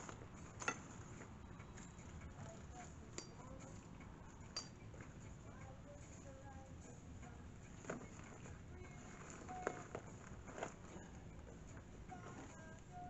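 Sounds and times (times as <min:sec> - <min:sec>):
metal tools clinking: 0:00.0 - 0:05.0.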